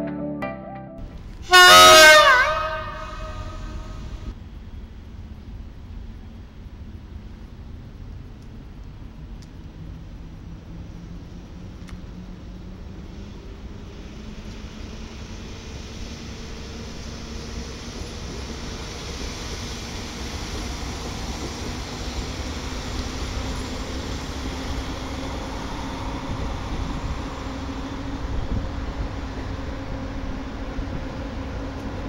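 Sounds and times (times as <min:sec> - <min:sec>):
electric locomotive pulling freight train: 0:01.1 - 0:32.0.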